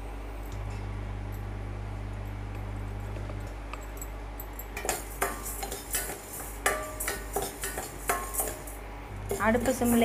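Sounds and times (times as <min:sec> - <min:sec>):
low hum: 0:00.0 - 0:04.7, 0:08.8 - 0:10.0
spoon scraping seeds in steel pot: 0:04.8 - 0:10.0.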